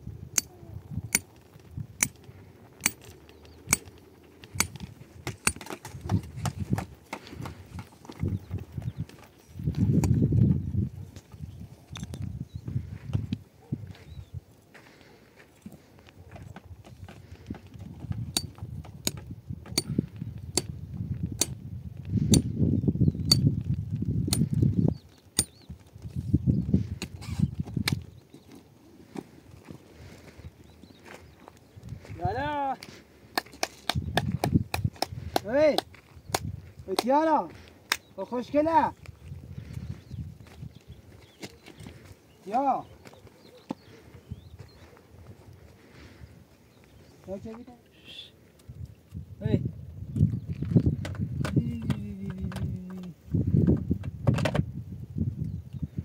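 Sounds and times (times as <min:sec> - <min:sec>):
footsteps on dirt: 0:01.2 - 0:20.2, 0:25.2 - 0:38.2, 0:38.9 - 0:47.8
mattock clinking into stony soil: 0:02.8 - 0:07.4, 0:18.2 - 0:20.0
hammer striking tent stake: 0:04.6 - 0:05.8, 0:18.3 - 0:19.9.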